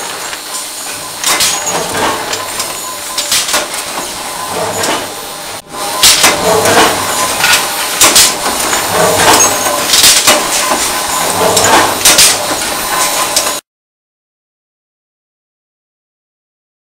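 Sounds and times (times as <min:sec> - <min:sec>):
noisy background: 0:00.0 - 0:13.6
steel bars clanking: 0:00.8 - 0:13.6.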